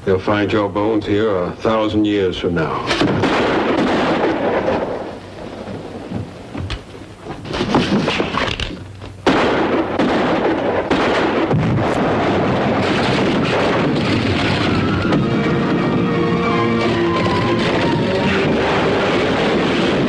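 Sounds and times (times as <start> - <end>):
loud blast and rumble: 3.0 - 6.1, 9.2 - 20.0.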